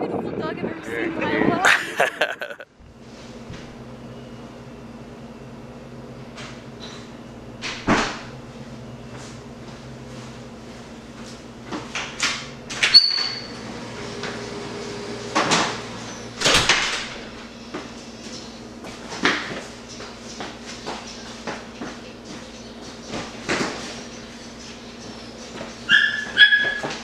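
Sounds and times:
low electrical hum: 0.2 - 27.0
door opening and shutting: 6.8 - 8.3, 11.9 - 17.4
short high squeak: 12.9 - 13.6.

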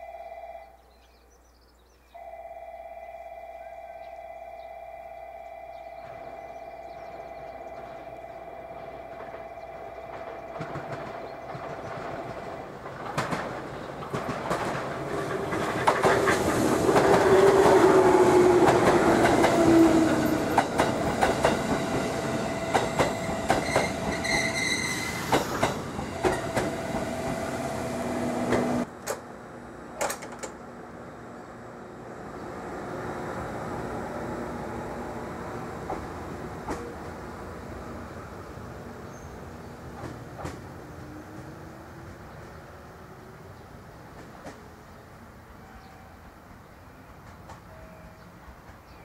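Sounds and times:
electric train passing: 2.2 - 49.0
wheels clattering over rail joints: 8.7 - 17.9, 30.0 - 30.7.

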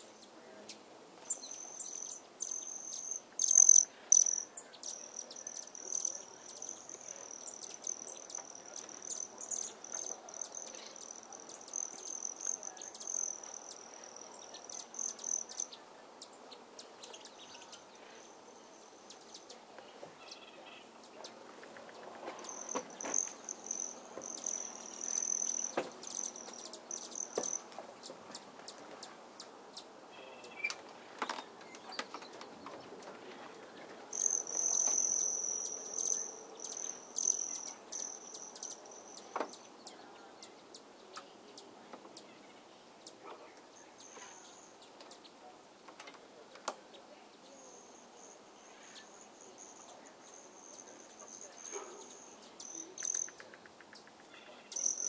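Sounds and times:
bird chirps: 1.2 - 19.6, 21.9 - 28.8, 34.1 - 43.2, 47.4 - 55.0
insects buzzing drone: 1.3 - 15.7, 22.4 - 27.7, 34.1 - 39.6.

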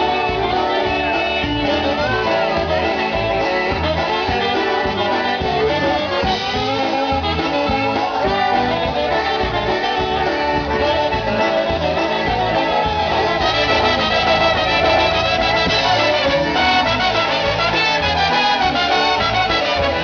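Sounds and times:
polka band playing: 0.0 - 20.0.

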